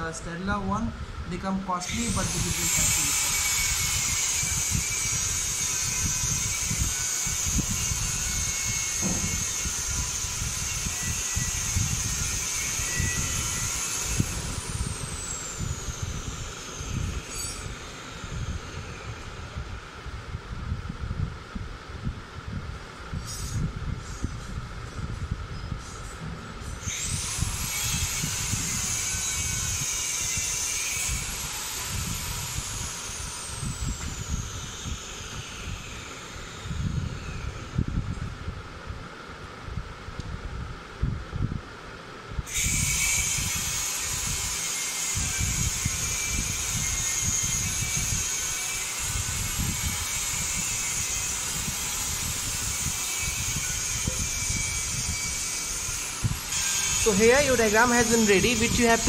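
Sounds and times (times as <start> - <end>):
hiss: 1.8 - 19.1, 23.2 - 24.6, 42.5 - 57.0.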